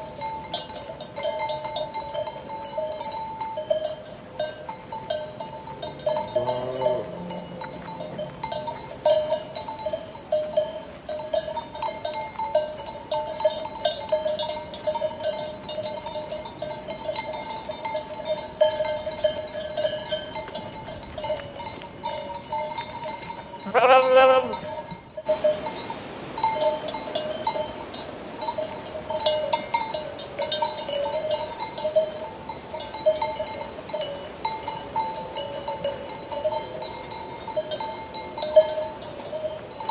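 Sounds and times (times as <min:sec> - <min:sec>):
sheep bells clanking: 0:00.0 - 0:39.9
sheep bleating: 0:23.6 - 0:24.6.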